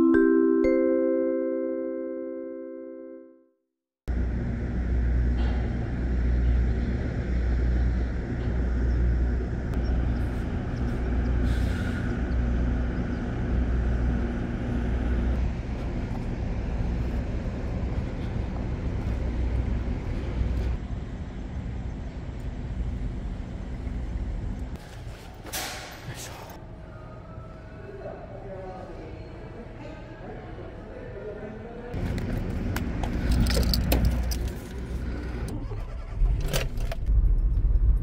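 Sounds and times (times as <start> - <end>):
heavy engines idling: 4.1 - 24.8, 32.0 - 37.4.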